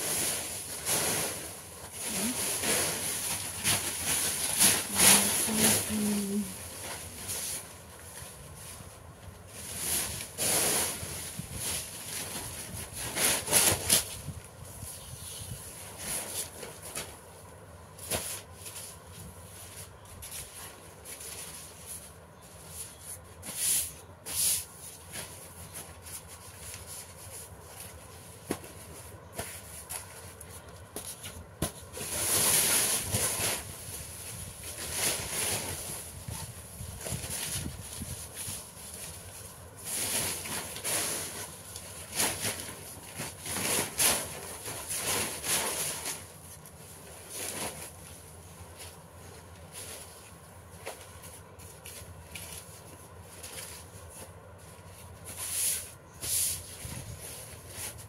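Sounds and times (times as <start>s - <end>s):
paper rustling and crinkling: 24.6s - 58.0s.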